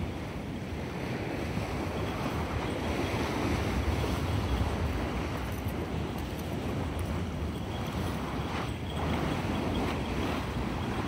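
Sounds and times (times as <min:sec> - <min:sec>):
sea surf: 0:00.0 - 0:11.0
wind buffeting the microphone: 0:00.0 - 0:11.0.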